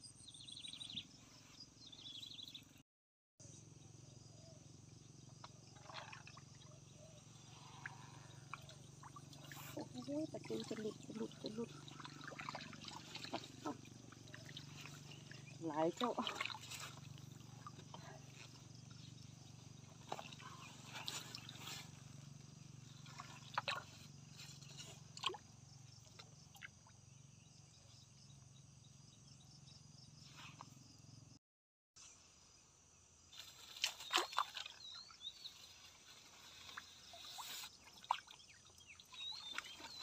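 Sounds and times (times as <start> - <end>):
sharp clicks and splashes: 7.7 - 18.6, 20.0 - 21.9, 23.0 - 24.1, 24.8 - 26.9, 33.7 - 34.8.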